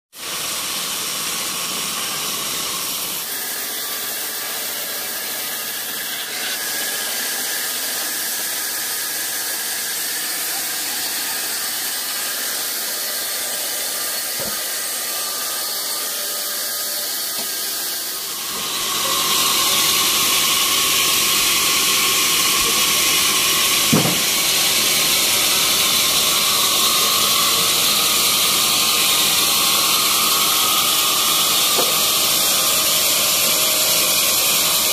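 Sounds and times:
band saw blade whining: 0.2 - 34.9
short knock: 23.9 - 24.3.

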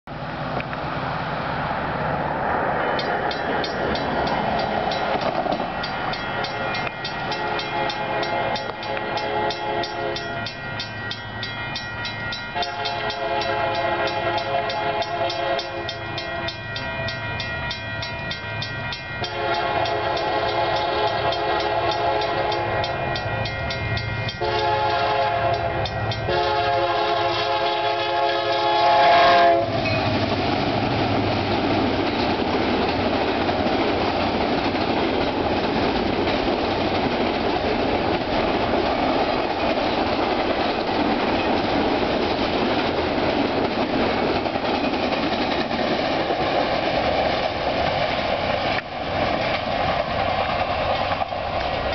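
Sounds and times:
train rumbling: 0.0 - 51.9
crossing bell ringing: 2.7 - 30.3
locomotive horn blasts: 7.3 - 10.5, 12.6 - 16.6, 19.2 - 23.5, 24.3 - 30.0.

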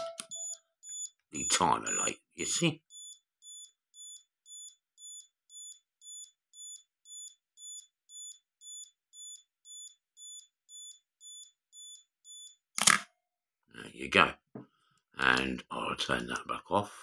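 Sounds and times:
camera self-timer beeping: 0.0 - 1.1, 2.9 - 12.6.

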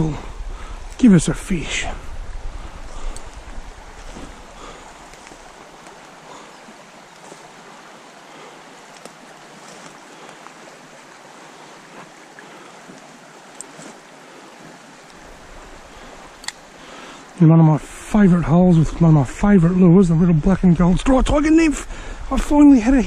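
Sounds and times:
creek water flowing: 0.0 - 23.0
faint clicks: 3.0 - 3.6, 8.9 - 9.2, 16.3 - 16.7.

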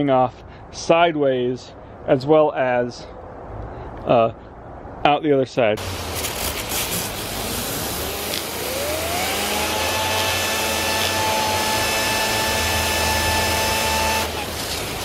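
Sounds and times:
hose spray hissing: 5.8 - 9.9
spinning bearing whine: 7.2 - 15.0.

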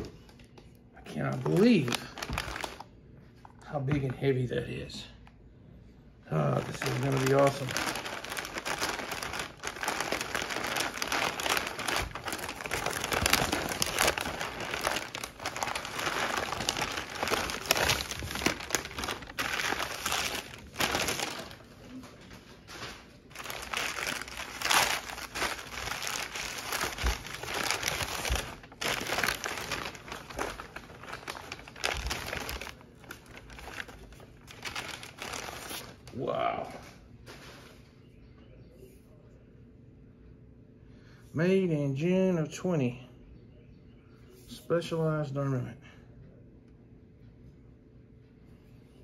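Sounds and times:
packing paper crinkling: 1.0 - 2.9, 6.3 - 36.3.

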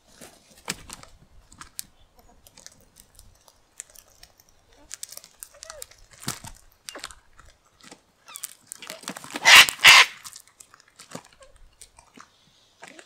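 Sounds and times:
cockatoos cracking seed: 0.2 - 13.0
cockatoo harsh screeches: 9.4 - 10.2.

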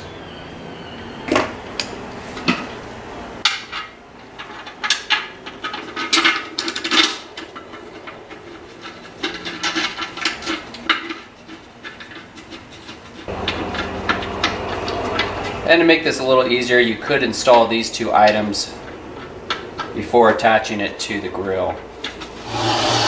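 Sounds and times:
metal parts clinking against grill lid: 3.5 - 13.0.

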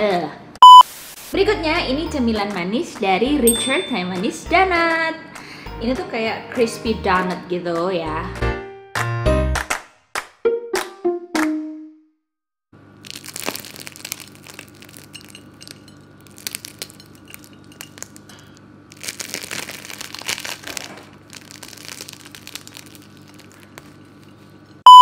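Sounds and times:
crispy crust crackling and crunching: 12.8 - 24.8
low steady hum: 12.8 - 25.0.

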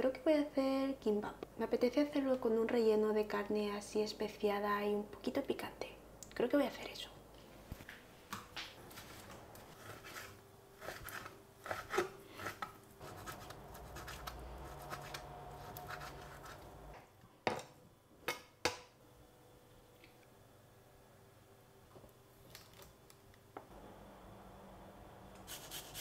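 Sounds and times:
knife cutting on cutting board: 9.0 - 16.7.

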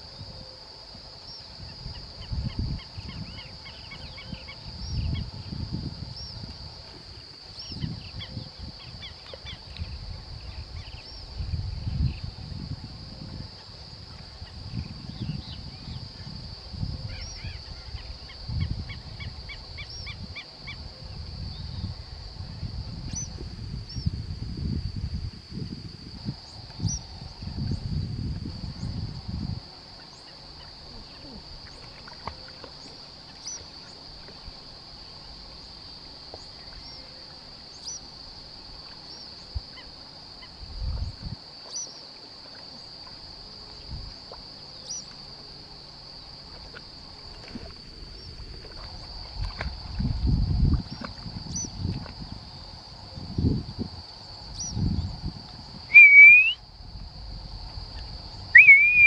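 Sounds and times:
wind buffeting microphone: 0.0 - 29.7, 40.6 - 41.5, 47.5 - 56.0
insect drone: 0.0 - 59.0.

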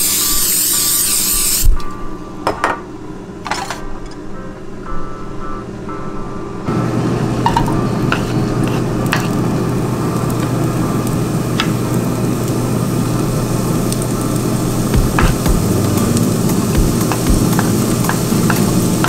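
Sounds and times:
vegetables sizzling in oil: 6.7 - 19.0
knife scraping cutting board: 8.1 - 9.4.

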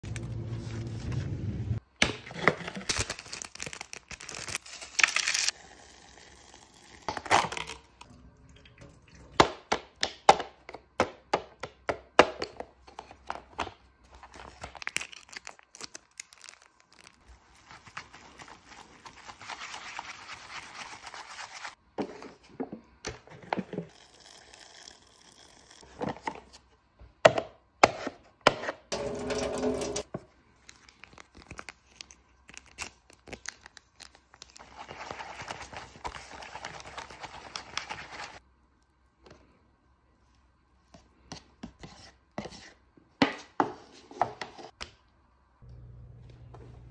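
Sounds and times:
packets crinkling and tearing: 2.6 - 5.6, 14.2 - 18.1, 30.6 - 36.9.

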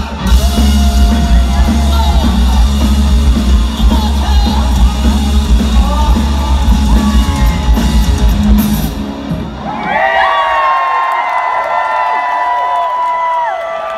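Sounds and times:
live rock band playing: 0.0 - 9.8.

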